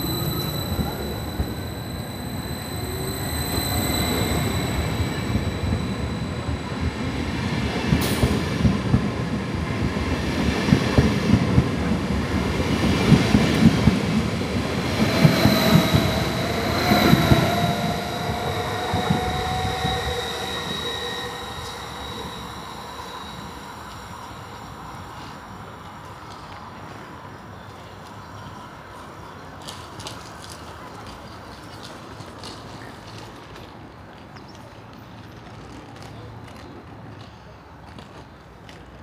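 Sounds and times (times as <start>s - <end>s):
electric train motors whining: 0.0s - 9.2s, 13.5s - 25.8s.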